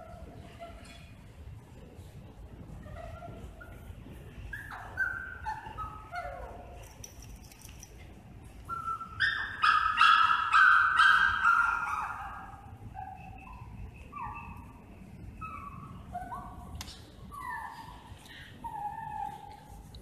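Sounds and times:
dog whining and yipping: 2.7s - 7.2s, 8.6s - 19.9s.

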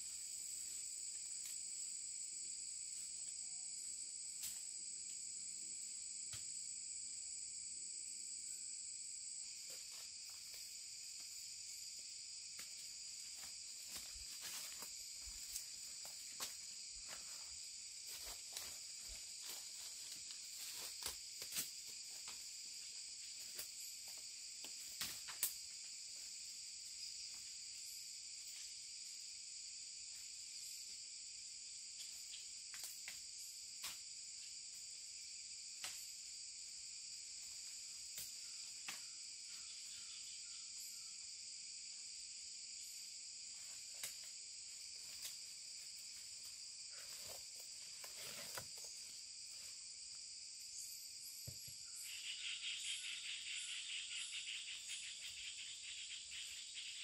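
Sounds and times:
forest insects droning: 0.0s - 57.0s
brushing through undergrowth: 46.1s - 49.1s.

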